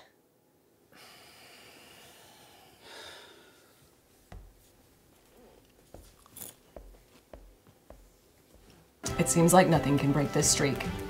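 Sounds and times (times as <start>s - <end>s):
person sighing: 1.0s - 3.7s.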